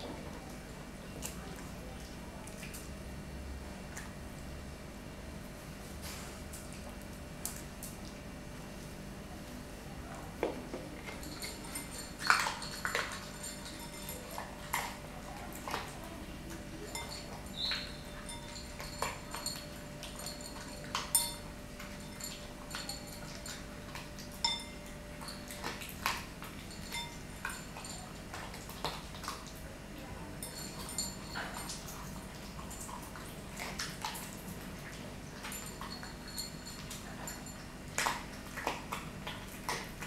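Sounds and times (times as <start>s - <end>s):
dog eating from bowl: 10.1s - 40.0s.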